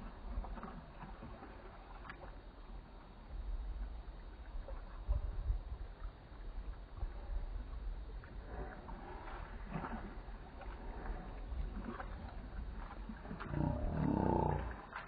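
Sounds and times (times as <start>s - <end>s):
dog swimming splashing water: 0.0s - 15.0s
low rumble: 0.0s - 15.0s.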